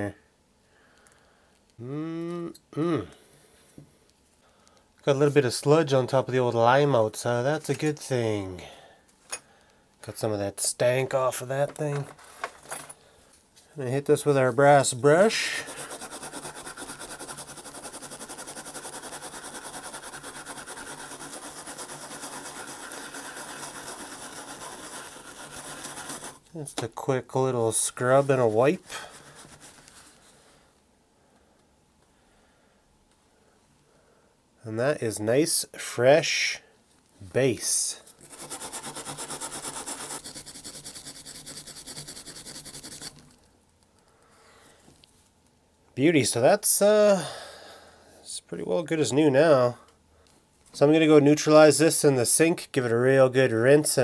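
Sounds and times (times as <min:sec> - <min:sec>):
wire brush scrubbing metal: 0:15.2 - 0:26.4, 0:38.2 - 0:43.2.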